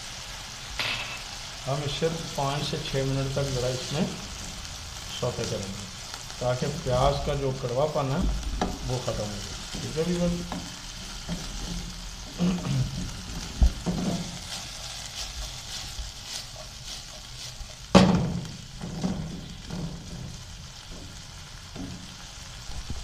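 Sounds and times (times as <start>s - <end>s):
chicken and onion sizzling in oil: 0.0s - 23.0s
wooden spatula scraping pan: 8.6s - 22.2s.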